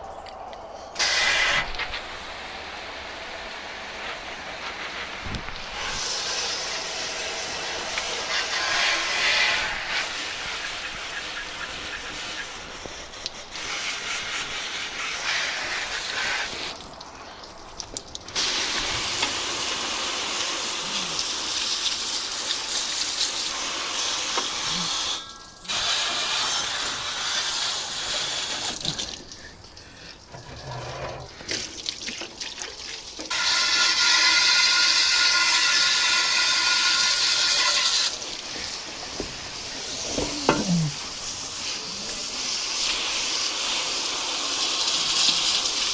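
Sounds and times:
water spraying onto metal: 1.0 - 45.9.

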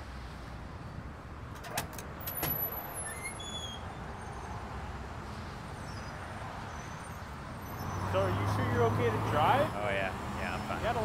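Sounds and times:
city traffic rumble: 0.0 - 11.0
metal door latch clicking: 1.6 - 2.7
door squeaking faintly: 2.3 - 3.8.

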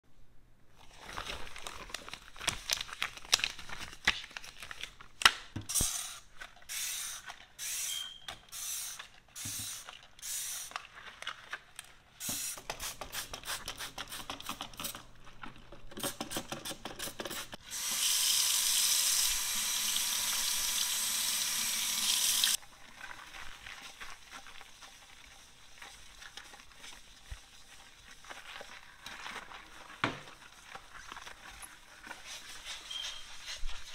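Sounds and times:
rubber gloves crackling: 0.7 - 5.5, 22.6 - 33.9
scrubbing sink: 16.0 - 33.9.

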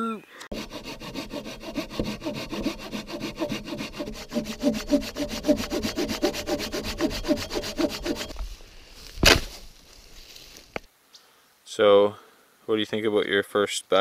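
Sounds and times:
saw cutting dry branch: 0.5 - 8.4
sharp thump: 9.2 - 9.7.

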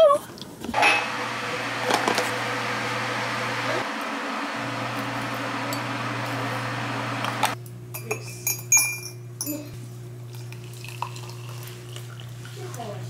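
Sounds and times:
metal clinking against ceramic mug: 8.0 - 9.7.

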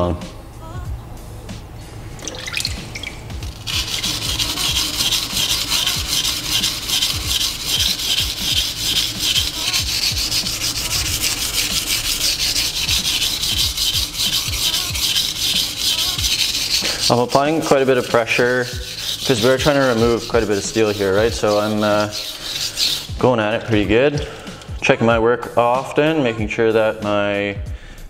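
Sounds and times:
knife scraping on whetstone: 3.2 - 24.9.

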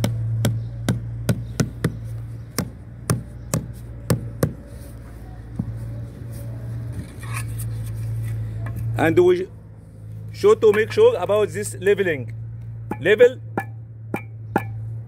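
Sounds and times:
rubber mallet knocking on concrete: 0.0 - 2.0, 12.9 - 14.8.

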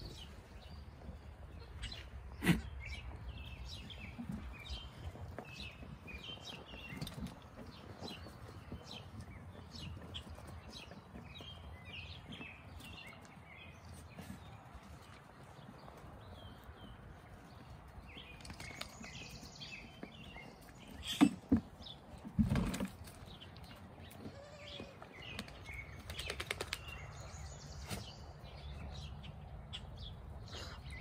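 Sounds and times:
small birds chirping: 0.0 - 31.0.

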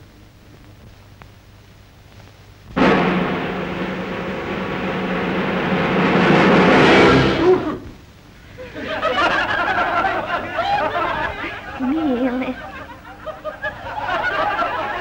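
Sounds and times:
orchestral soundtrack swell: 2.8 - 7.9
crowd chattering and laughing: 8.5 - 15.0.

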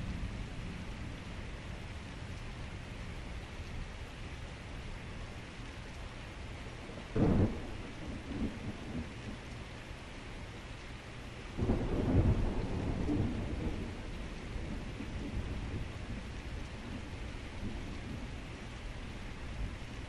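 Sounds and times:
heavy rain: 0.0 - 20.0
thunder cracking and rumbling: 7.1 - 9.6, 11.5 - 19.9.

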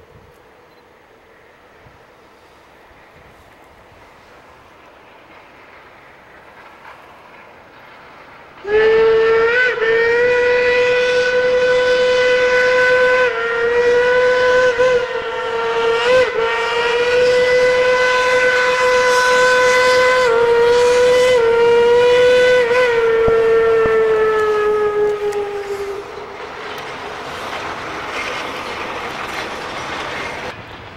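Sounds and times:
steam locomotive whistle blast: 8.6 - 26.4.

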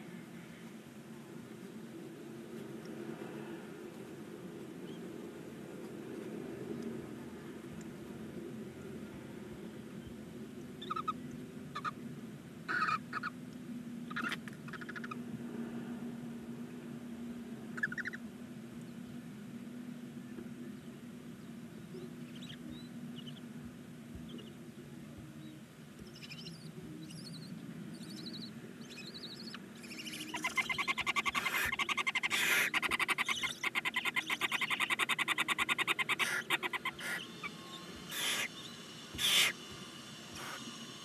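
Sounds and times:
owl chicks cheeping: 10.8 - 11.2, 11.8 - 12.0, 12.7 - 13.4, 14.1 - 15.2, 17.8 - 18.2, 22.0 - 23.4, 26.0 - 40.8
owls rattling chatter: 10.8 - 11.2, 12.7 - 13.4, 14.1 - 15.2, 17.8 - 18.2, 29.4 - 39.7, 40.3 - 40.8
owl harsh hisses: 30.2 - 41.0.

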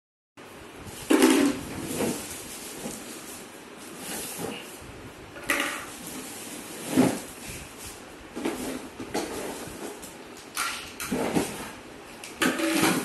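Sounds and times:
cardboard and plastic rustling: 0.9 - 4.8, 5.4 - 11.8.

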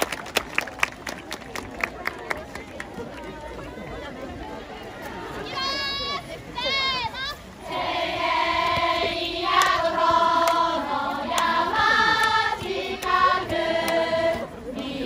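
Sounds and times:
women singing in unison: 7.6 - 15.0.

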